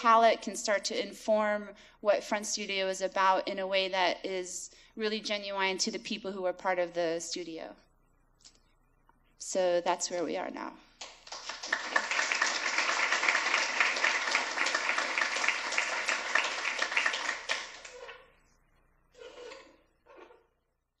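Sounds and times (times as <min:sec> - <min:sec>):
audience applauding: 0:11.0 - 0:18.2.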